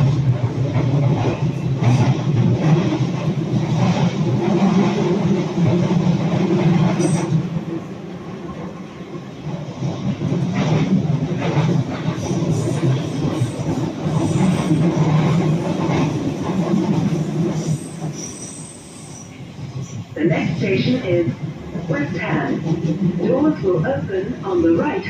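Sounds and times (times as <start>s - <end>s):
train rumbling on rails: 0.0s - 25.0s.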